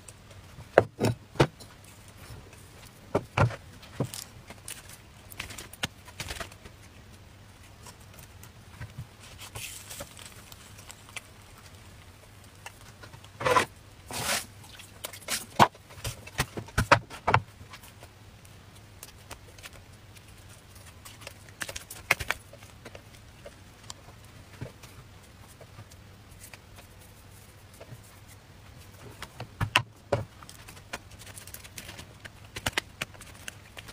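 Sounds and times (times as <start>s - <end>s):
egg crepe scrunched by hand: 7.6s - 33.9s.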